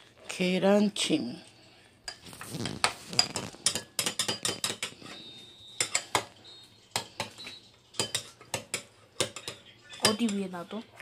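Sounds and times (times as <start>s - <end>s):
metal spoon scraping a container: 2.1s - 5.2s.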